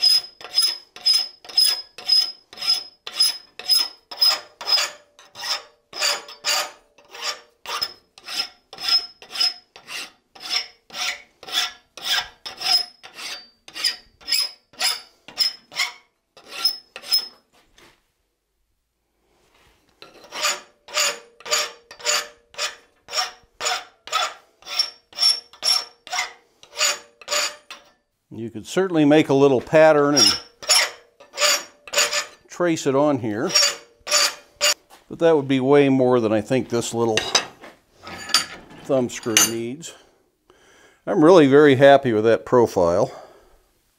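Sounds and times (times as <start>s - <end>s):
hand file rasping on metal: 0.0s - 17.3s, 20.0s - 27.9s, 30.1s - 32.4s, 33.4s - 34.8s
faint metal ringing: 38.1s - 39.9s.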